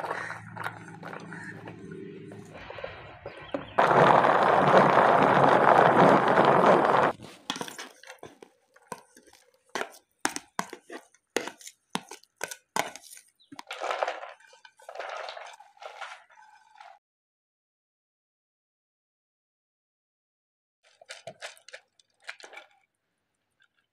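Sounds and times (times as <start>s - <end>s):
vegetable chopper whirring: 2.5s - 7.1s
knife tapping and scraping: 7.5s - 13.6s.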